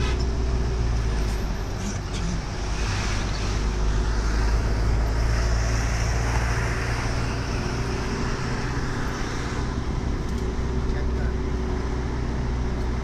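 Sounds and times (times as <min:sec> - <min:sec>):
tyres hissing on road: 0:00.0 - 0:10.1
engine rumble: 0:00.0 - 0:13.0.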